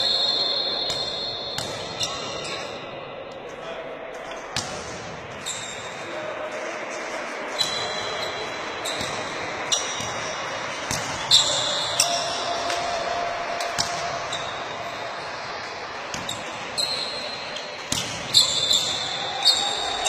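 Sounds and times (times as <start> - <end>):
basketball bouncing on gym floor: 0.9 - 2.2, 8.9 - 11.6.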